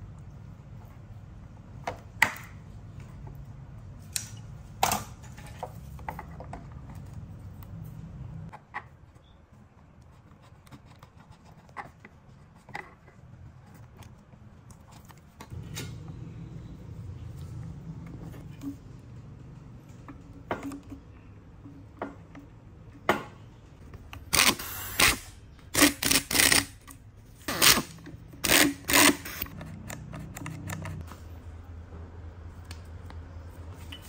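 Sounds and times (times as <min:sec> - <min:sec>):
low steady hum: 0:00.0 - 0:26.1.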